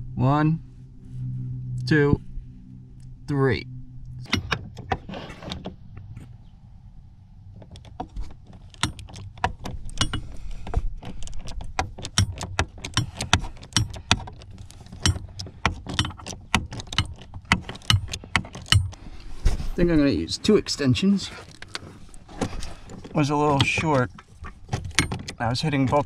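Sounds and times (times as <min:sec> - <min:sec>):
hand ratchet clicking: 0:08.7 - 0:19.0.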